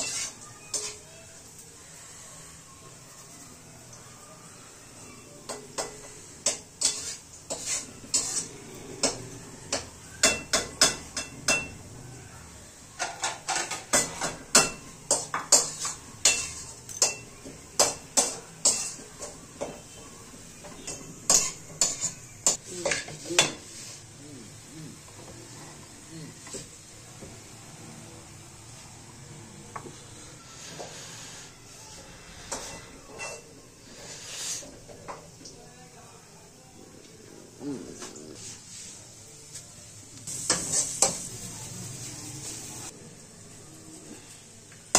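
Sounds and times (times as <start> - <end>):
metal spoon scraping a pan: 0.0 - 1.1, 5.5 - 11.7, 13.0 - 20.0, 20.6 - 24.1, 32.2 - 34.9, 40.3 - 41.3
faint steady hiss: 0.0 - 44.9.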